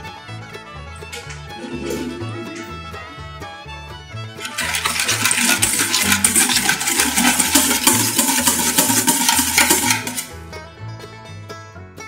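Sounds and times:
whisk beating in a metal bowl: 4.4s - 10.3s.

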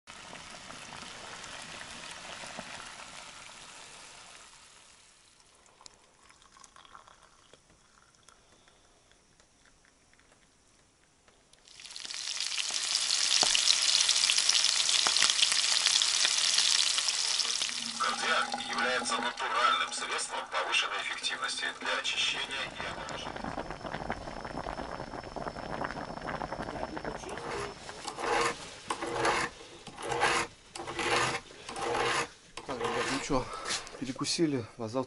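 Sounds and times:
food sizzling in a frying pan: 0.1s - 5.5s, 11.6s - 28.9s.

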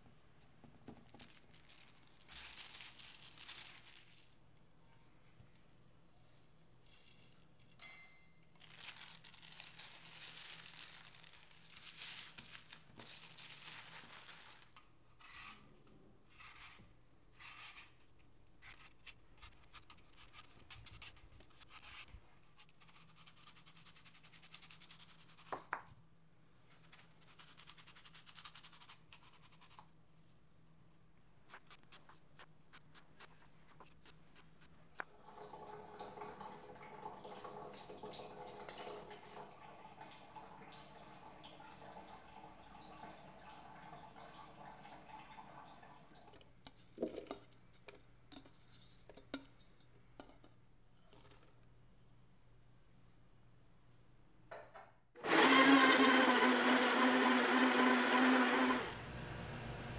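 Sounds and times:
spatula scraping dough: 15.2s - 15.7s, 16.3s - 18.0s
apple being peeled: 16.3s - 25.6s, 55.2s - 59.9s.

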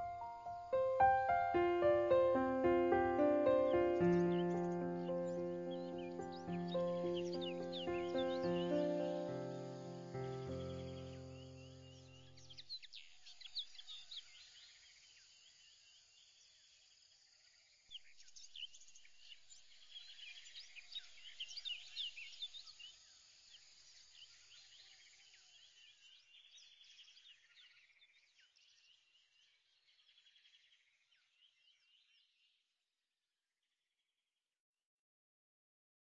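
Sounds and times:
small birds chirping: 0.0s - 15.6s.

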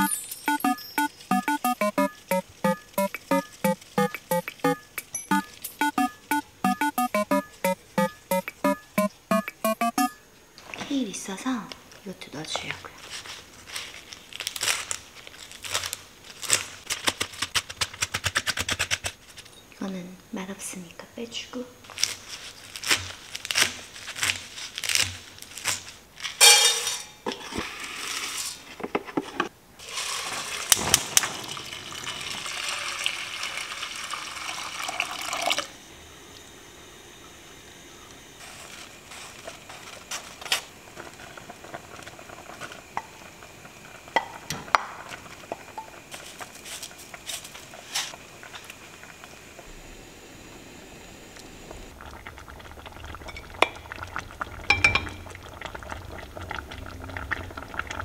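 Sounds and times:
kitchenware clinking: 26.4s - 27.2s, 54.7s - 55.2s
liquid pouring into a pot: 29.8s - 35.7s.

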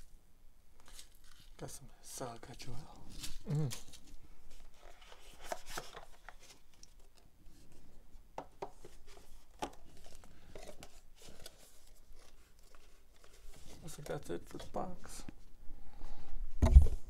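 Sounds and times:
paper packaging shuffling: 0.8s - 1.7s, 2.4s - 7.2s, 8.8s - 15.2s.

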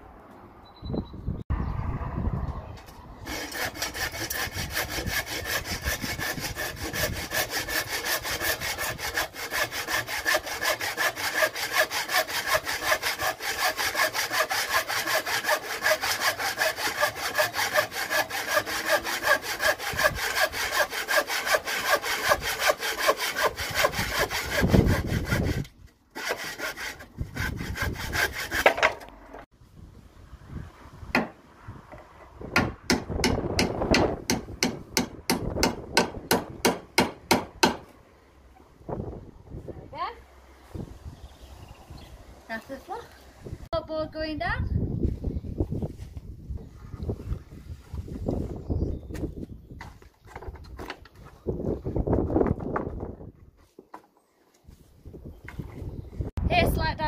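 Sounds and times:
hand saw cutting wood: 3.2s - 29.1s, 33.2s - 37.9s.

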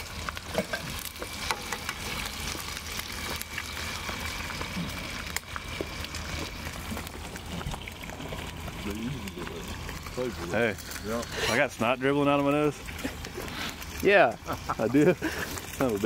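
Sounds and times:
crackles and pops: 0.0s - 16.0s
food sizzling and frying: 0.0s - 16.0s.

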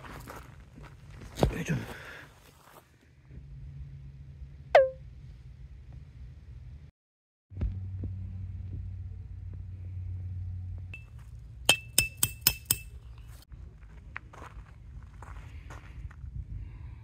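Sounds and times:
hammer clinking on tent peg: 11.7s - 13.0s.

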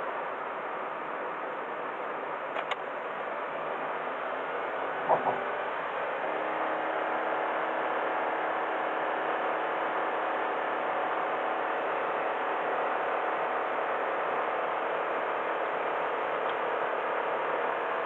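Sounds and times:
car engine hum: 0.2s - 18.0s
tyre and road rumble: 5.0s - 5.7s.

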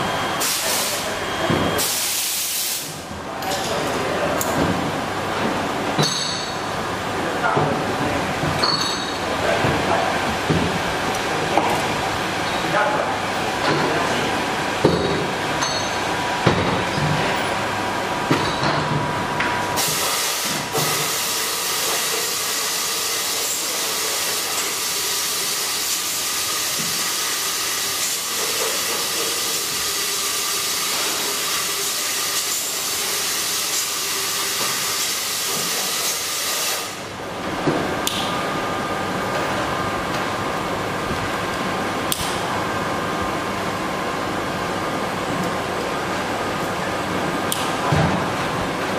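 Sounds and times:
sharp knocks and clinks: 6.0s - 6.6s, 8.6s - 9.2s, 14.9s - 16.0s.

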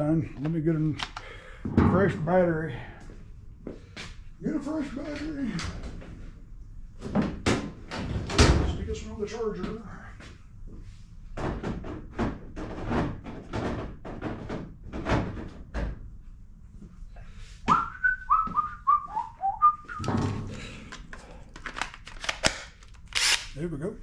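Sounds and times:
person whistling a tune: 17.7s - 20.1s.

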